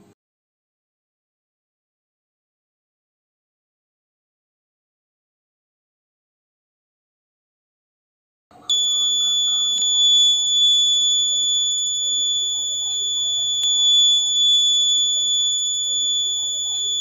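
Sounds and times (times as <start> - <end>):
fire alarm buzzer continuous tone: 8.6 - 17.0.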